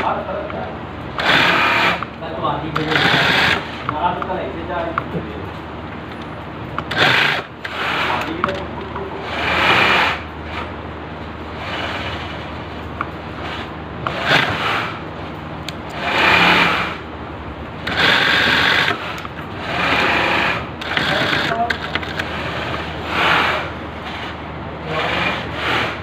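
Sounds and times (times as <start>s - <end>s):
steady low hum: 0.0s - 26.0s
sewing machine stitching: 1.2s - 2.1s, 2.7s - 4.0s, 6.8s - 8.6s, 9.2s - 10.7s, 13.4s - 15.0s, 15.9s - 17.0s, 17.8s - 26.0s.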